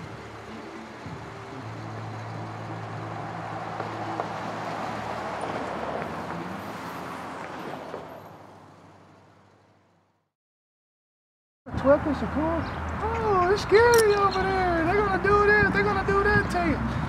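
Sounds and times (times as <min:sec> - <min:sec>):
vehicle engine humming: 0:00.0 - 0:10.2, 0:11.7 - 0:17.0
car passing: 0:00.0 - 0:10.3.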